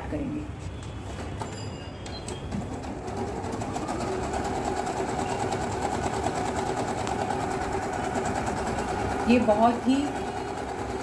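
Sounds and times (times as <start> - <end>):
sewing machine stitching: 2.6 - 11.0.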